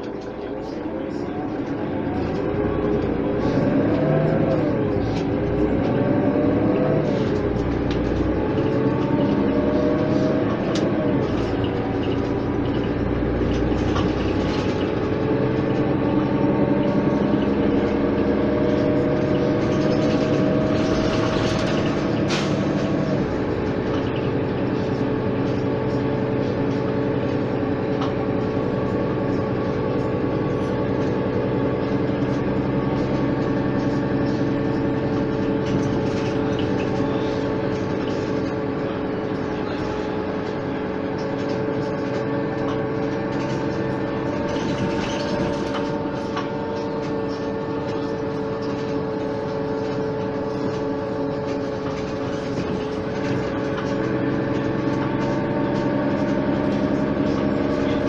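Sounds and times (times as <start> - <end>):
bus diesel engine accelerating: 0.0 - 58.0.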